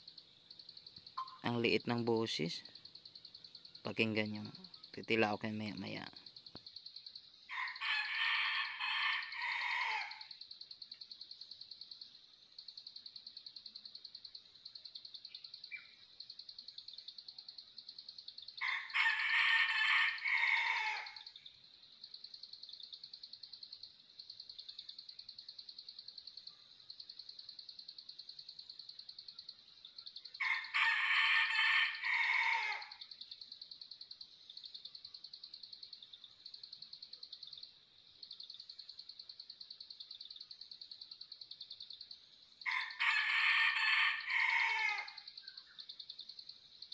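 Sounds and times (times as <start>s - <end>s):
rooster crowing: 7.5s - 10.3s, 18.6s - 21.3s, 30.4s - 33.0s, 42.6s - 45.2s.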